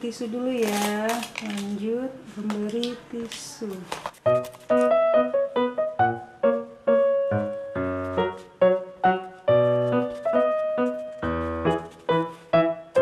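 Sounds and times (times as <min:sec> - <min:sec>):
piano music: 0:04.1 - 0:13.0.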